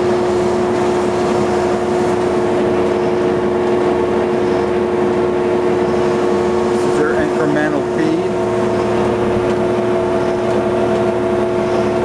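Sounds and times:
coolant spraying hiss: 0.0 - 11.6
grinder machine hum: 0.0 - 12.0.

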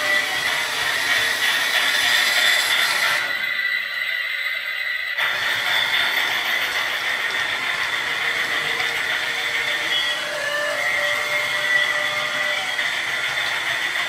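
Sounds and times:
toy motor whine: 0.0 - 14.0
train rolling and rattling on track: 0.0 - 14.0.

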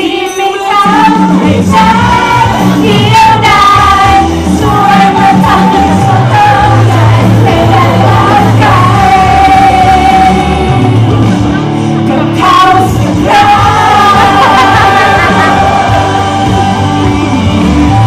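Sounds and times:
loud pop music with singing: 0.0 - 18.0
performers shouting: 13.4 - 16.9.

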